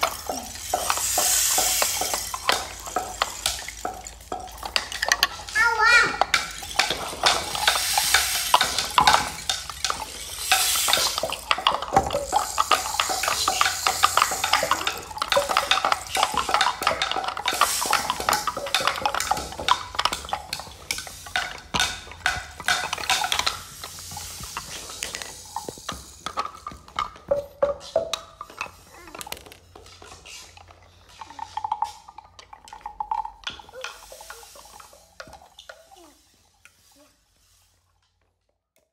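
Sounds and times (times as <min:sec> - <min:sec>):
wooden percussion clicking and rattling: 0:00.0 - 0:38.9.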